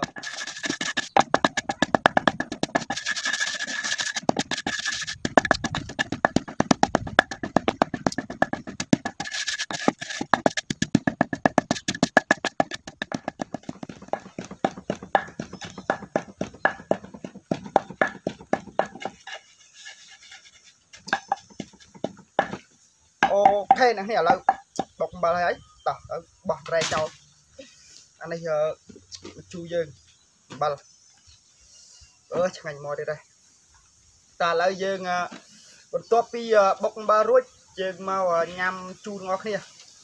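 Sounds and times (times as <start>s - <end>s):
pestle pounding in a mortar: 0.0s - 19.5s, 20.9s - 22.6s, 23.2s - 25.0s.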